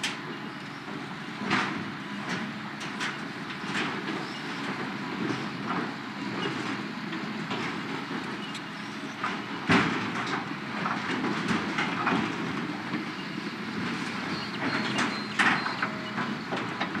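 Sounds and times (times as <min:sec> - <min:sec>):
excavator engine under load: 0:00.0 - 0:17.0
steel container clanking and creaking: 0:07.5 - 0:17.0.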